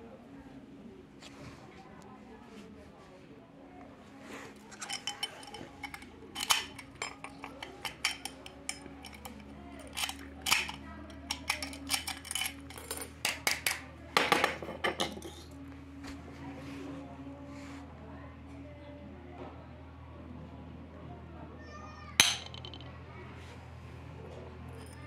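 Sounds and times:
padlock and keys clinking: 4.7s - 13.8s
lock clattering on concrete: 4.7s - 15.5s, 22.2s - 22.8s.

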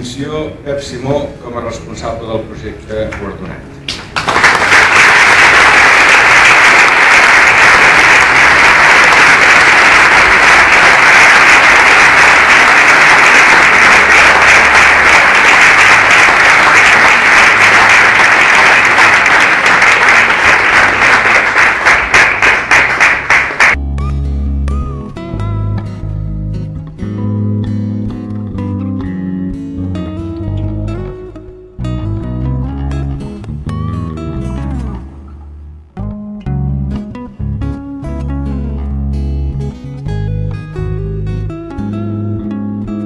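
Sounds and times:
audience applauding: 3.9s - 23.8s.

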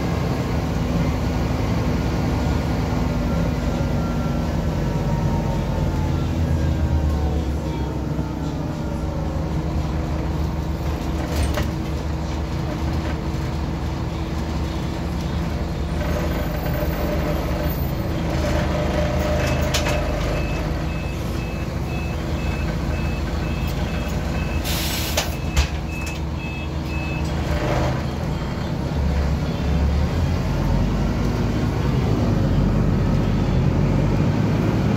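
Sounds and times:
bus diesel engine running: 0.0s - 34.9s
compressed air hiss: 24.6s - 25.3s
high beeps: 25.3s - 27.3s.

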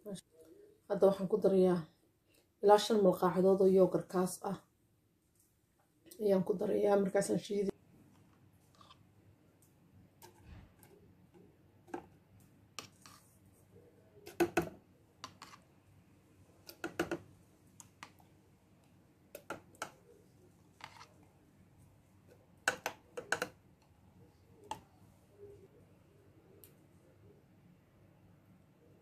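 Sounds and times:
yogurt spooned into blender jar: 14.3s - 15.7s.

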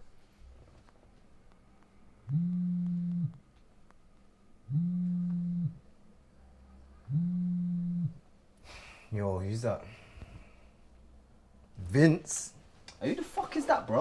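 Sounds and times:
mobile phone vibrating: 2.2s - 3.5s, 4.7s - 5.9s, 7.1s - 8.2s.

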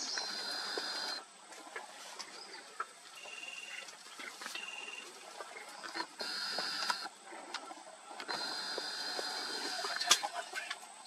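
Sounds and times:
high buzzing bird calls: 0.0s - 1.3s, 2.3s - 7.2s, 8.3s - 10.2s.

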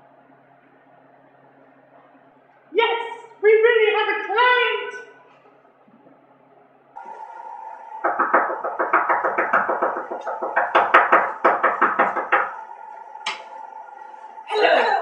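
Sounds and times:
steady hum: 0.0s - 15.0s
rapid knocking on wooden door: 8.0s - 12.6s.

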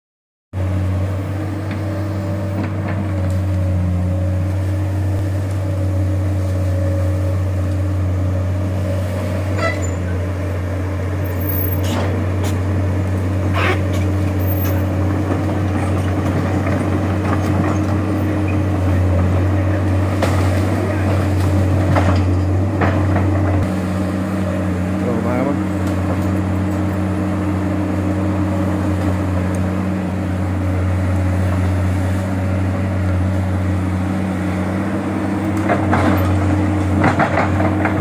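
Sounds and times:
excavator diesel engine running: 0.6s - 38.0s.

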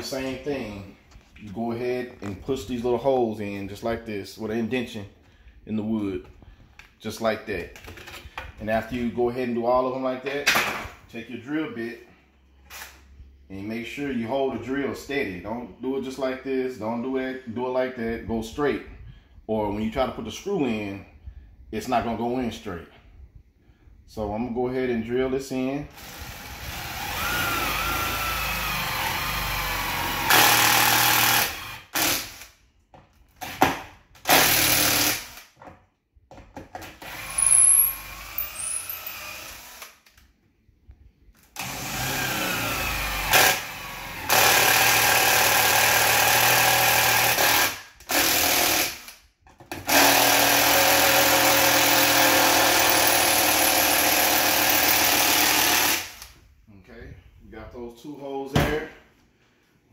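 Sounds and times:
cordless drill boring into wood: 25.9s - 32.5s, 34.3s - 35.4s, 37.0s - 40.0s, 41.6s - 49.2s, 49.8s - 56.3s.

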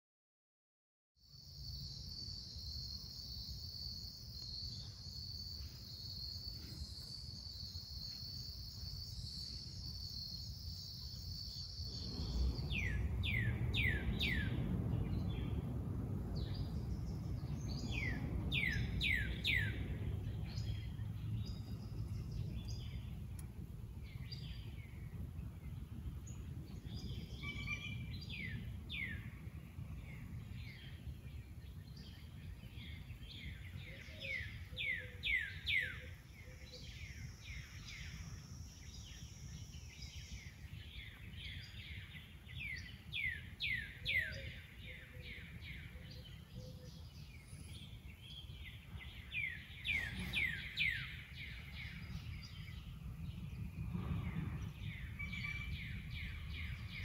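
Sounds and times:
birds singing whistled notes: 1.3s - 57.0s
low rumble: 4.0s - 35.2s, 44.8s - 57.0s.

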